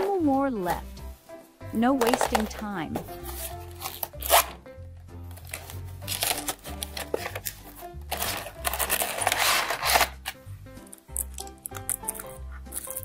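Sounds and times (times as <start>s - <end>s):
background music with bass: 0.1s - 13.0s
plastic bag crinkling: 5.4s - 10.4s.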